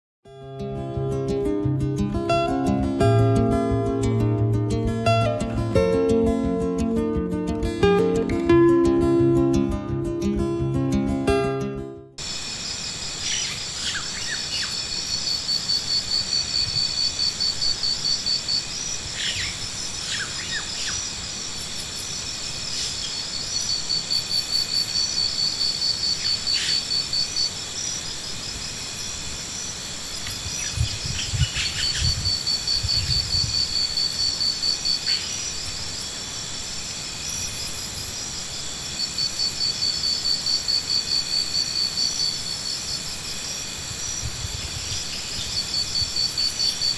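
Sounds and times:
steady high insect hum: 0.4 - 9.2, 12.2 - 46.9
high pulsing insect trill: 12.2 - 46.9.

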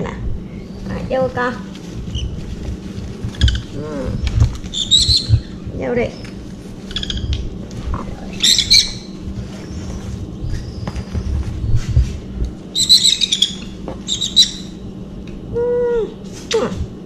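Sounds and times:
baby parrots chirping: 3.3 - 6.3, 6.9 - 7.4, 8.3 - 11.0, 12.8 - 14.8.

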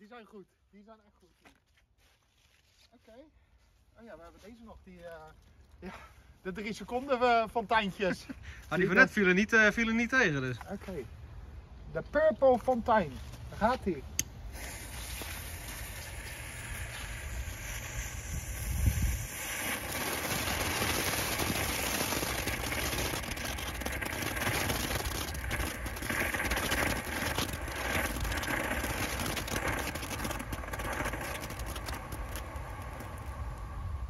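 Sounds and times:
fountain firework hissing and crackling: 14.3 - 34.0.

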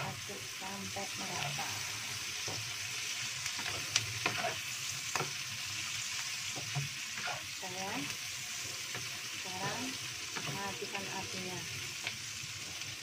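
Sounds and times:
food sizzling in hot oil: 0.0 - 13.0
wooden spatula scraping a wok: 1.1 - 2.7, 3.4 - 5.4, 6.4 - 7.6, 8.4 - 13.0.

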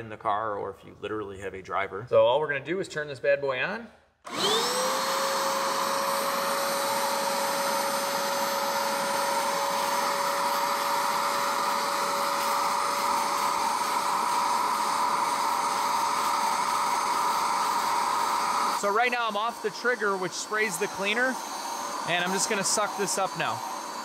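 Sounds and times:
carpet cleaner motor whine: 4.3 - 24.0
rushing air: 9.1 - 24.0.

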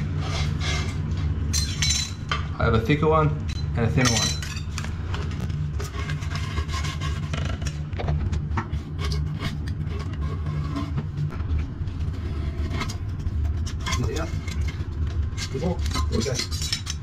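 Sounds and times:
steady low rumble: 0.0 - 16.2
metal scrapers scraping and clicking: 13.6 - 17.0.

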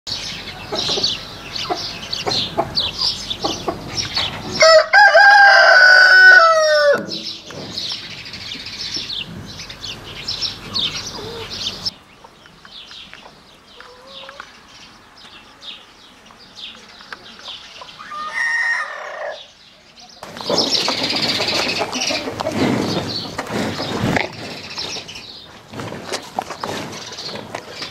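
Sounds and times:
rooster crowing: 4.6 - 7.1, 18.0 - 19.5.

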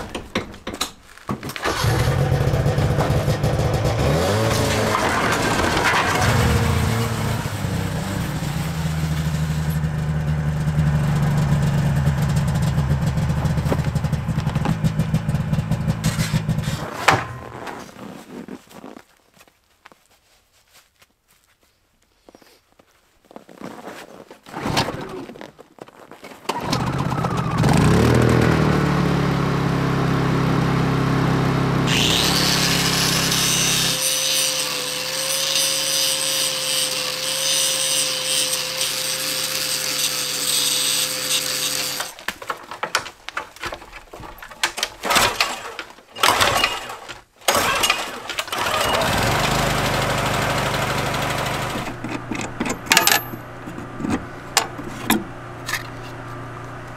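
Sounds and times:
knocks and rattles of handling: 0.0 - 1.7, 12.3 - 19.6, 41.8 - 48.7, 51.8 - 56.9
angle grinder grinding steel: 1.8 - 10.1, 31.9 - 42.2.

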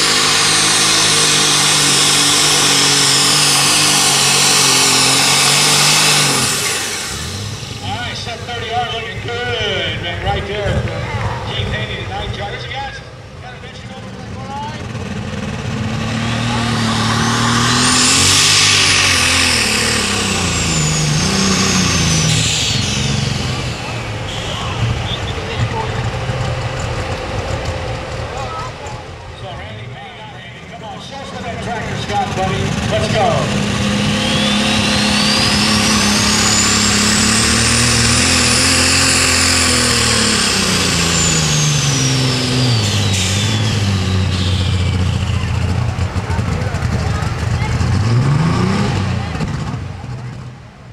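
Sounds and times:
turbo whine: 0.0 - 10.4, 15.4 - 30.3, 31.4 - 48.8
tractor engine revving: 0.0 - 50.9.

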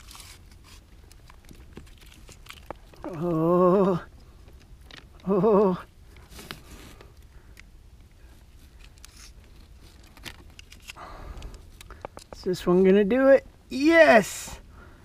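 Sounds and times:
handling clicks and rustles: 0.0 - 3.2, 5.9 - 12.6.

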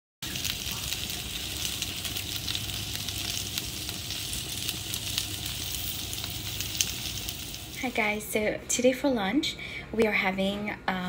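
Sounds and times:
vegetables sizzling on a grill: 0.2 - 8.4.

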